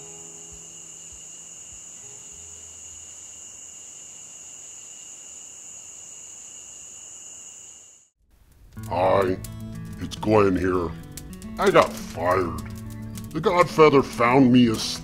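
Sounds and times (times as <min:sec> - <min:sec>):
crickets chirping: 0:00.0 - 0:08.1
soft low music notes: 0:08.8 - 0:15.0.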